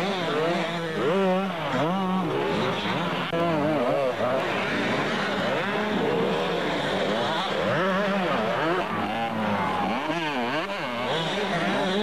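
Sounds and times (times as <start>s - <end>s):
motocross bike engines revving: 0.0s - 12.0s.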